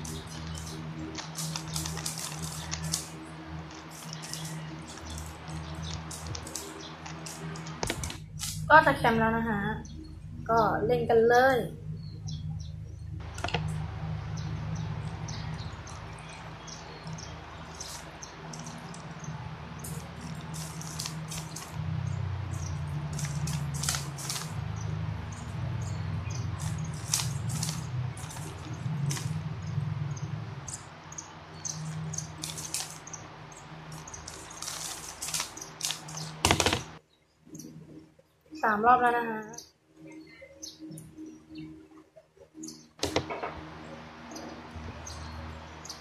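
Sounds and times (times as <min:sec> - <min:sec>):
low hum: 0:00.0 - 0:46.0.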